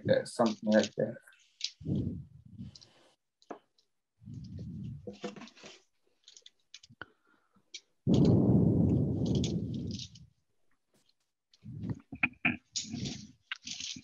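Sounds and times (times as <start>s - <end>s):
rubbing against microphone: 1.7s - 3.1s, 4.2s - 5.9s, 8.1s - 10.4s, 11.6s - 14.0s.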